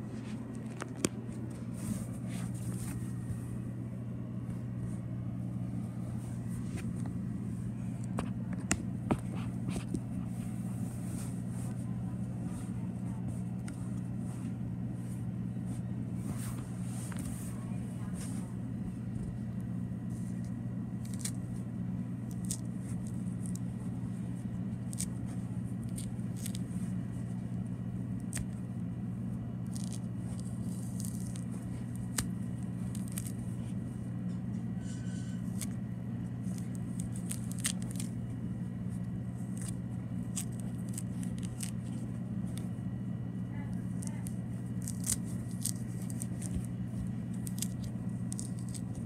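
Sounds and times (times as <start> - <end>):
steady low hum: 0.0 - 49.0
orange peel tearing: 20.1 - 34.0, 35.4 - 42.8, 43.8 - 49.0.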